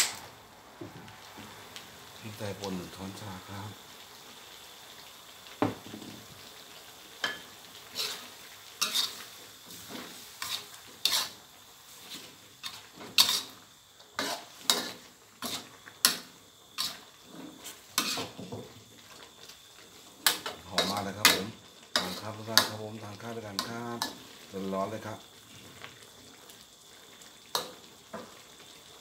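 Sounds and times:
faint sizzle: 0:00.0 - 0:29.0
metal spatula scraping a wok: 0:07.3 - 0:18.5, 0:20.2 - 0:22.8.

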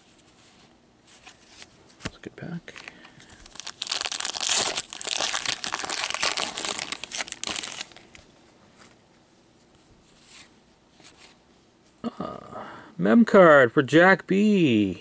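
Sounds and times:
wrapper crinkling and tearing: 0:02.7 - 0:08.3.

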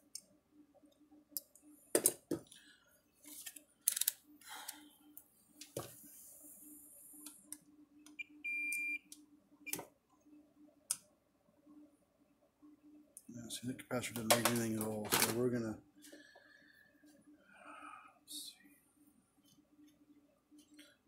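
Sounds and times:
multimeter beep: 0:08.2 - 0:09.1.

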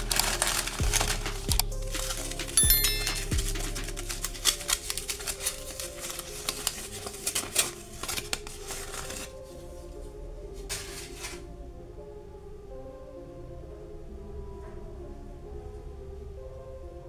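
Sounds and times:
aluminium foil crinkling: 0:00.0 - 0:09.5.

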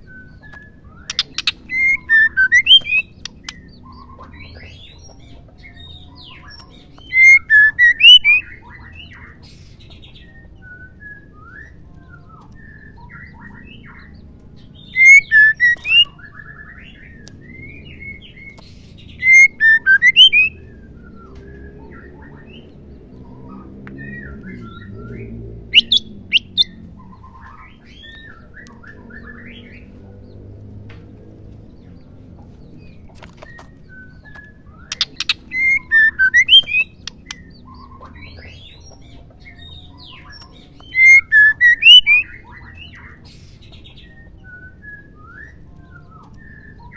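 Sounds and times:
bird chirps and whistles: 0:00.0 - 0:04.1, 0:06.3 - 0:09.2, 0:14.8 - 0:18.3, 0:19.0 - 0:22.6, 0:24.0 - 0:26.7, 0:33.4 - 0:38.4, 0:39.7 - 0:46.9
bird calling sharp notes: 0:00.6 - 0:04.4, 0:07.0 - 0:08.8, 0:14.9 - 0:17.6, 0:19.2 - 0:21.2, 0:25.7 - 0:26.8, 0:34.3 - 0:38.4, 0:40.1 - 0:42.6.

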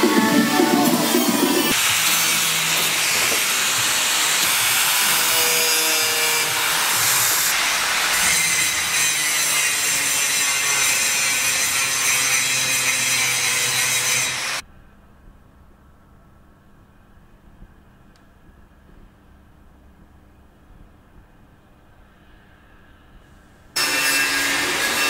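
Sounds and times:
angle grinder grinding steel: 0:00.0 - 0:14.6, 0:23.8 - 0:25.0.

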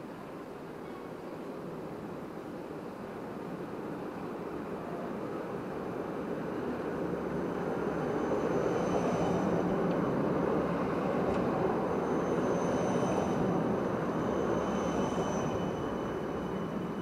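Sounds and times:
tram wheels rumbling on rails: 0:03.1 - 0:17.0
high whine: 0:07.0 - 0:17.0.

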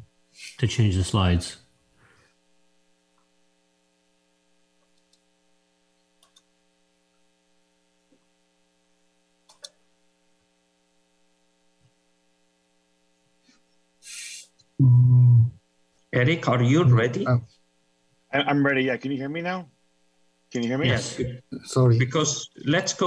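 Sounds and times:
faint electrical hum: 0:00.0 - 0:23.0
faint clicks: 0:04.8 - 0:05.3, 0:06.2 - 0:06.5, 0:09.4 - 0:09.8.

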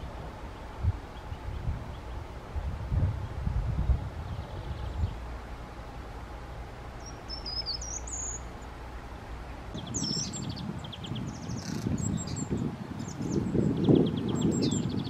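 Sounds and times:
low rustling noise: 0:00.0 - 0:15.0
bird trills: 0:07.0 - 0:08.8, 0:09.4 - 0:15.0
bird giving high thin calls: 0:11.3 - 0:13.3.

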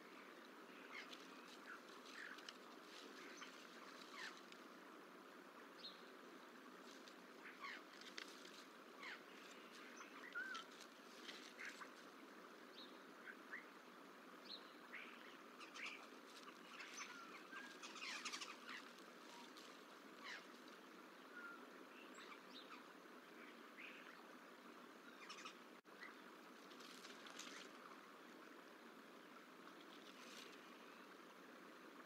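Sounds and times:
faint bird chirps: 0:00.0 - 0:04.5, 0:07.4 - 0:08.2, 0:08.9 - 0:12.0, 0:12.7 - 0:26.4
low outdoor hiss: 0:00.0 - 0:32.0.

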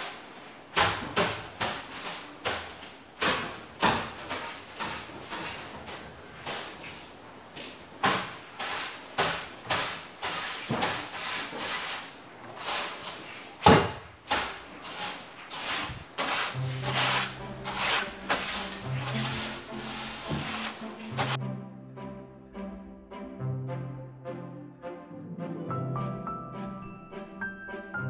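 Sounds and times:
broom sweeping wooden tabletop: 0:00.8 - 0:07.2, 0:08.0 - 0:21.4
background music: 0:16.6 - 0:28.0.

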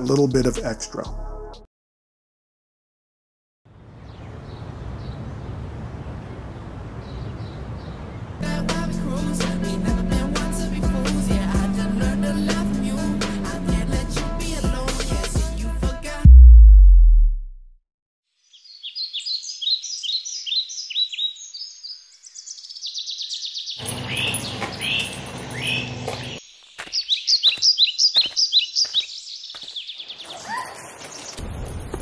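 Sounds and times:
songbirds chirping: 0:03.7 - 0:14.6, 0:18.4 - 0:31.4
short sharp sounds: 0:16.2 - 0:17.8.

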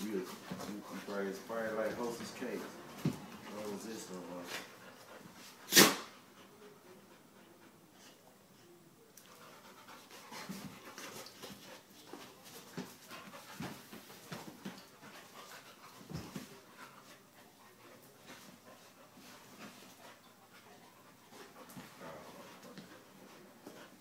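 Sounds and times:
dogs panting: 0:00.0 - 0:05.6, 0:09.2 - 0:24.0.

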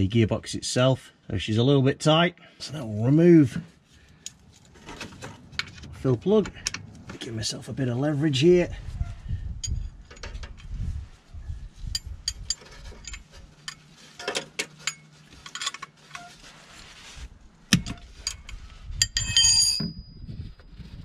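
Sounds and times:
tools tapping against metal: 0:11.9 - 0:15.9.

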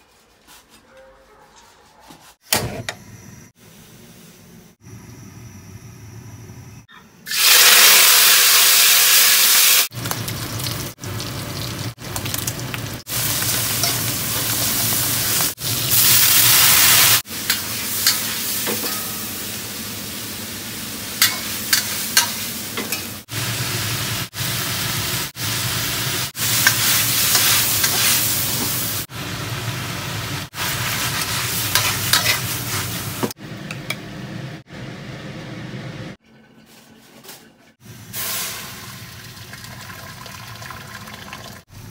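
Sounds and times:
food sizzling in a wok: 0:07.3 - 0:33.4, 0:37.8 - 0:39.5
metal spatula scraping a wok: 0:26.4 - 0:28.6, 0:30.6 - 0:33.1.

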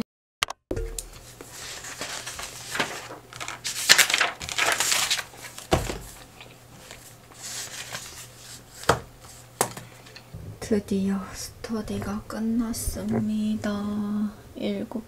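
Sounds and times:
notebook pages turning: 0:01.2 - 0:09.9.

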